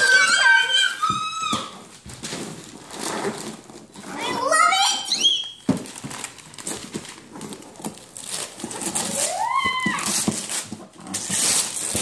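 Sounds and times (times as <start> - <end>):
wrapping paper tearing: 5.8 - 12.0
child squealing: 9.1 - 10.3.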